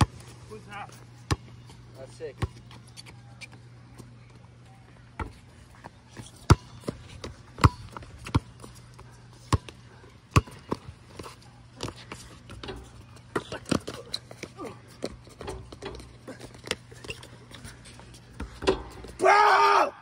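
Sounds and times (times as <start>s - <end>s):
basketball bouncing on concrete: 6.2s - 8.7s, 9.5s - 17.2s, 18.0s - 19.2s.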